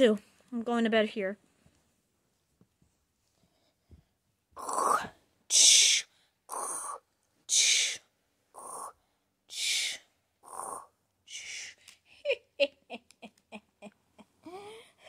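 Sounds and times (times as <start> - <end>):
person imitating snoring: 4.6 - 5.2, 6.5 - 7.0, 8.6 - 9.0, 9.8 - 10.9.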